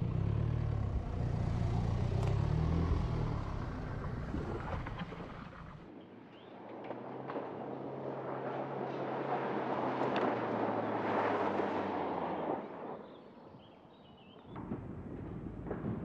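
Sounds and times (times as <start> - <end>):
diesel engine running hard: 0.0 - 5.8.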